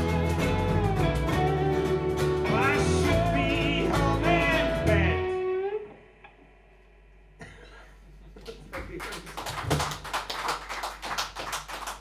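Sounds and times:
audience clapping: 8.4 - 12.0.

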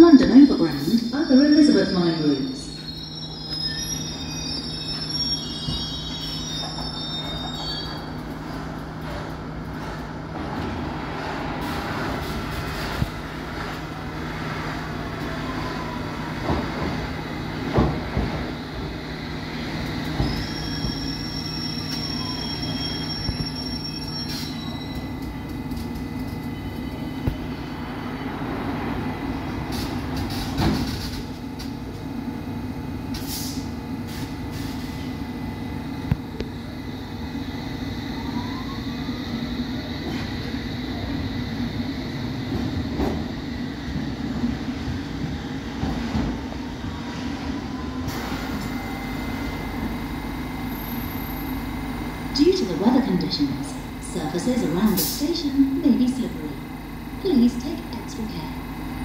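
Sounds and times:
train rumble: 0.0 - 59.0
high squealing tone: 0.2 - 8.2
wheel squeal: 0.9 - 8.2, 20.2 - 25.1.

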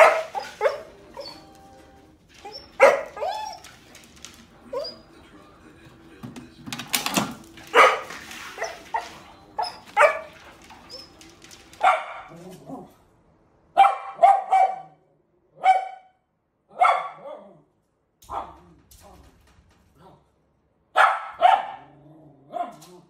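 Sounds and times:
dog barking: 0.0 - 1.5, 2.6 - 3.7, 7.7 - 11.0, 11.8 - 12.9, 13.8 - 15.0, 15.6 - 17.6, 18.3 - 18.6, 21.0 - 22.9.

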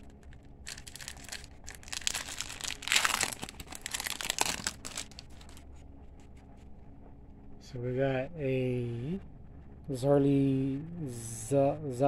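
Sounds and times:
wrapper tearing and crinkling: 0.0 - 5.6.

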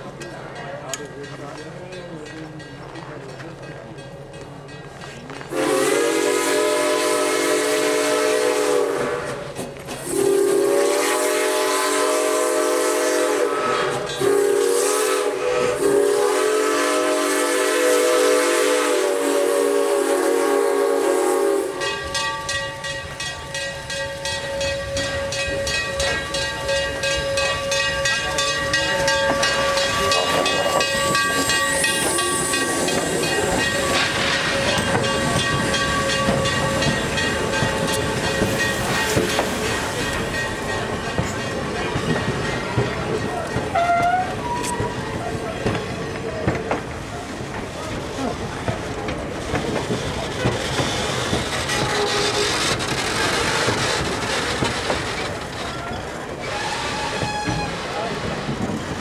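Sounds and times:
steam whistle blasts: 5.5 - 22.2, 43.7 - 45.2, 51.6 - 52.6, 56.4 - 57.9
steam hissing: 5.5 - 59.0.

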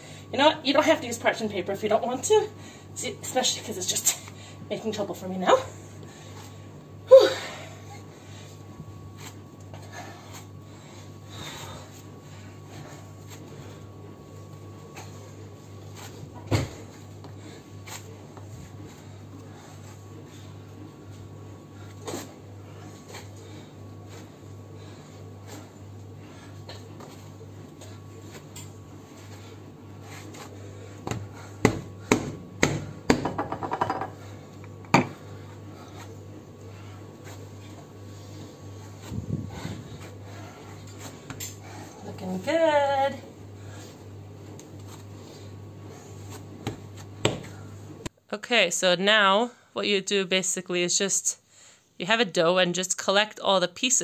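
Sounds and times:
steady low hum: 0.0 - 54.0
hands kneading dough: 8.0 - 33.3, 34.2 - 48.1
dough slapped on countertop: 31.1 - 34.0, 46.7 - 47.6.

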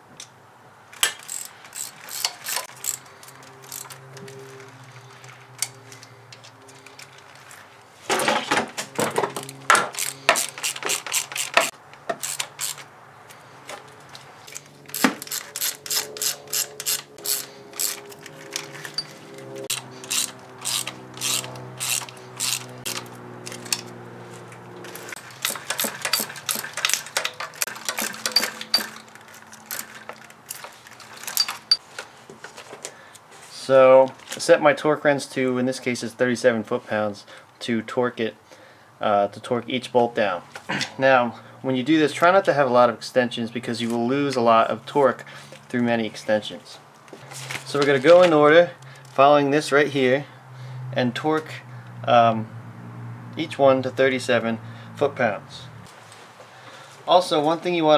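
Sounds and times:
hand ratchet clicking: 1.0 - 4.0, 9.4 - 12.8, 14.5 - 23.9, 24.9 - 31.8.

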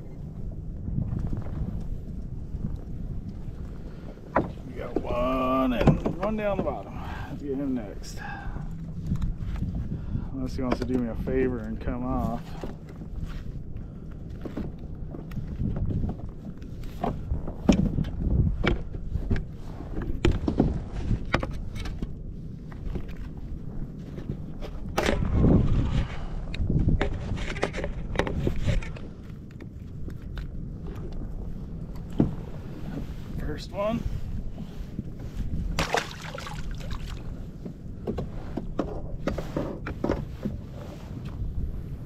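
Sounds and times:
wind rumble on microphone: 0.0 - 42.0
water slapping kayak hull: 0.2 - 11.1, 11.8 - 42.0
water slapping plastic hull: 35.6 - 37.4
splashes and knocks: 35.7 - 37.3.

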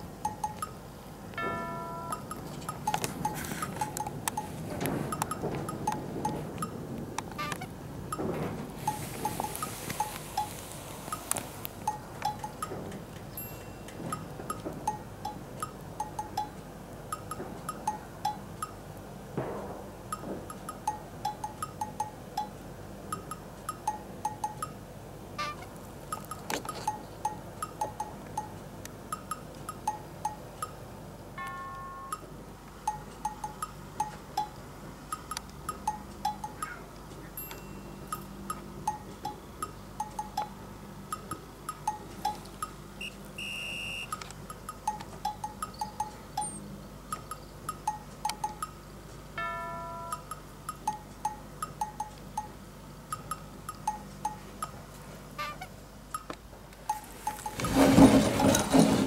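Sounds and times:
bouncy bell-like music: 1.4 - 6.8, 11.9 - 15.4, 31.4 - 32.3, 37.4 - 40.5, 49.4 - 52.6.

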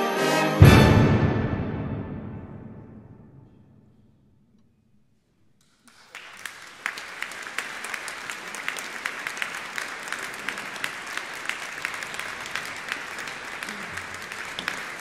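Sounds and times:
audience applause echoing: 5.9 - 15.0.

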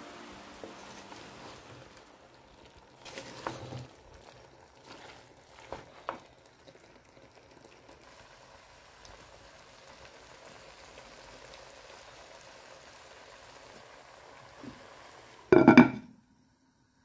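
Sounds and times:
food sizzling in a pot: 0.0 - 17.0
wooden spoon knocking pot: 15.5 - 16.0.

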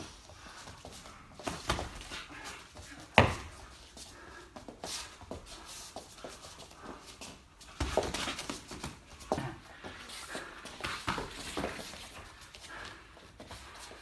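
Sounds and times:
boxing gloves slapping and thudding: 1.3 - 2.3, 2.9 - 3.6, 7.6 - 9.6.

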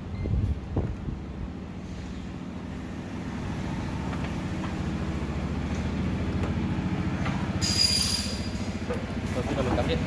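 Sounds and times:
vehicle engine rumbling: 0.0 - 10.0.

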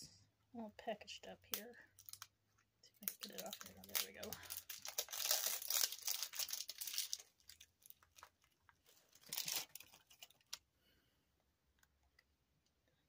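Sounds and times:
packaging crinkling and tearing: 2.0 - 2.3, 3.0 - 10.6.

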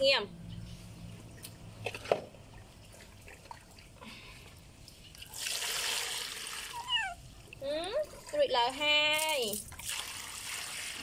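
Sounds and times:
water pouring into plastic basin: 5.2 - 6.9, 9.2 - 11.0.

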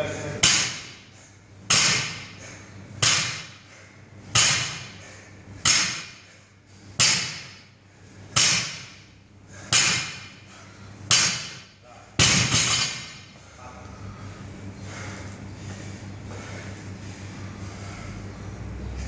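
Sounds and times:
barbell thudding on floor: 12.2 - 13.2.

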